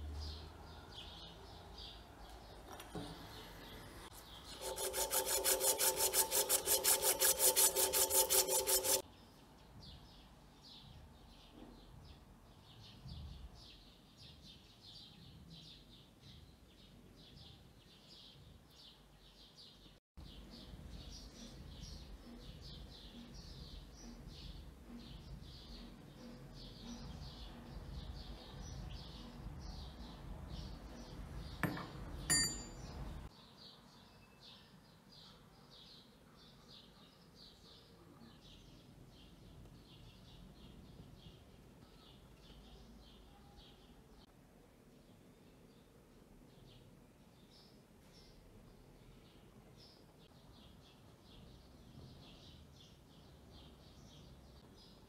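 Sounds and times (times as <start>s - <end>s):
rapid scraping of brass: 4.1s - 9.0s.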